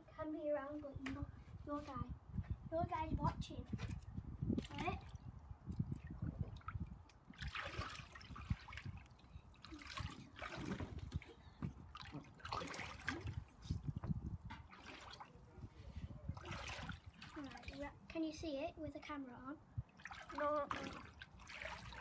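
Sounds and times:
water splashing in paddling pool: 4.6s - 14.0s, 14.6s - 15.5s, 16.3s - 18.0s, 19.9s - 22.0s.

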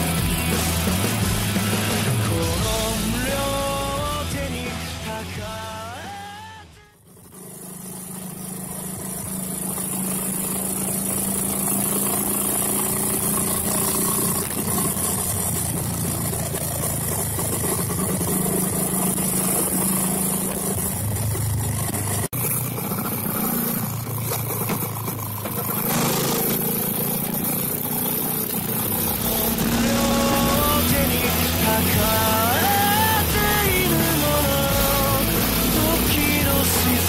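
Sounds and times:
motorcycle engine running: 0.0s - 37.0s.

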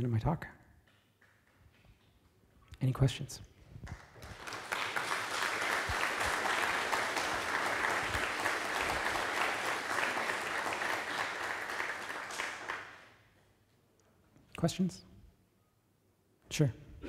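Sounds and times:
audience applauding: 3.9s - 13.2s.

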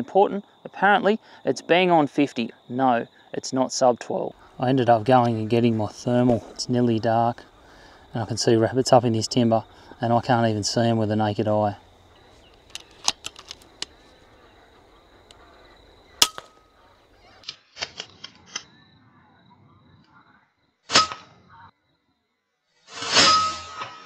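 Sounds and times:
handling clicks: 12.5s - 14.0s.

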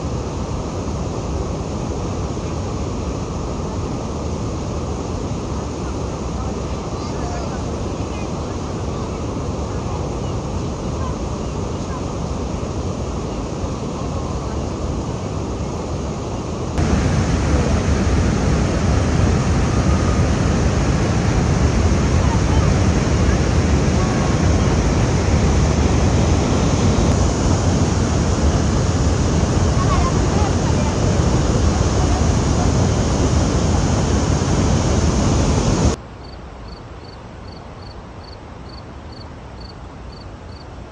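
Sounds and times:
river rapids rushing: 0.0s - 36.0s
waterfall roaring: 0.0s - 36.0s
insect chirping: 36.2s - 40.7s.

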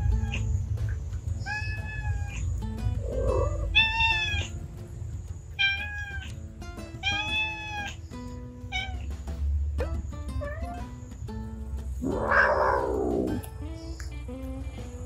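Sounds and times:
cat yowling: 0.0s - 0.5s, 1.4s - 4.6s, 5.6s - 6.4s, 7.0s - 8.1s, 8.7s - 9.1s, 10.4s - 11.0s, 12.0s - 13.4s.

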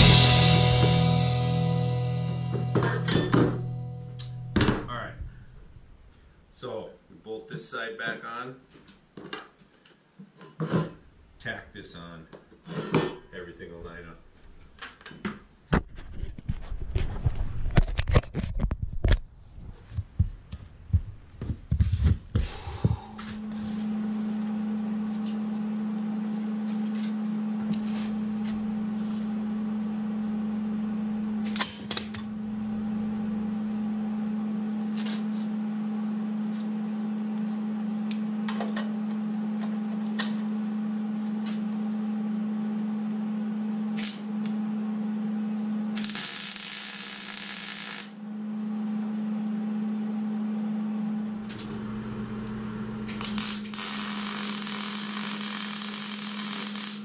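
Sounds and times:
steady hum: 0.0s - 6.7s, 19.4s - 57.0s
crackling welding arc: 44.0s - 44.6s, 46.0s - 48.2s, 53.1s - 57.0s.

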